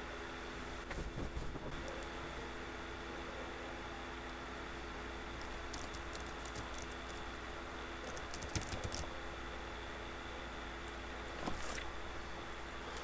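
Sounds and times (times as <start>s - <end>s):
steady hum: 0.0s - 13.0s
computer keyboard typing: 5.6s - 7.2s, 8.0s - 9.1s.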